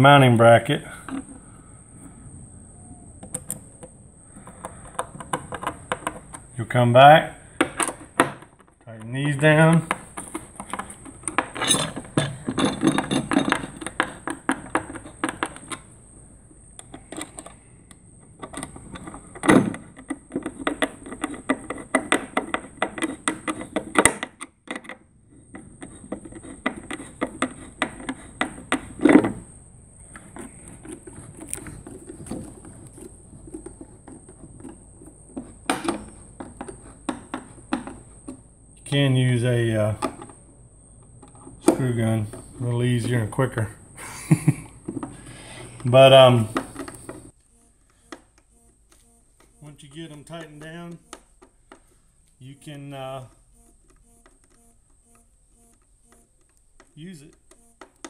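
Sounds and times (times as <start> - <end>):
screwdriver clicking and scraping: 3.2 - 6.4, 9.8 - 16.0, 16.8 - 29.3, 30.0 - 38.4, 46.6 - 47.3.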